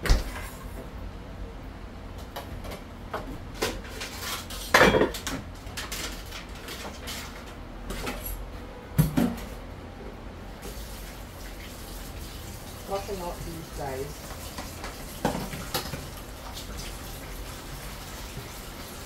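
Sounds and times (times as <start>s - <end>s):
dishes and utensils clattering: 3.6s - 8.3s
tap running into sink: 14.2s - 16.9s.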